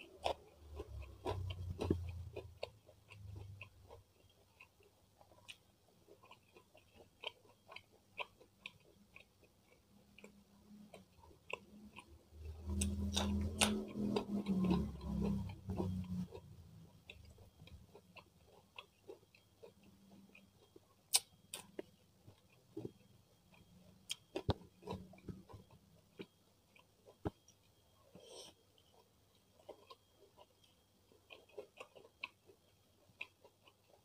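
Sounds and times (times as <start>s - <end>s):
close chewing: 0.0s - 34.0s
wet mouth clicks: 21.1s - 21.9s.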